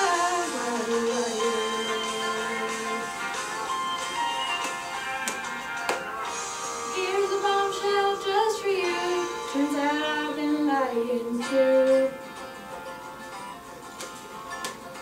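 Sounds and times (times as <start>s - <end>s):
woman singing: 0.0s - 3.4s, 6.9s - 12.3s
musical accompaniment: 0.0s - 15.0s.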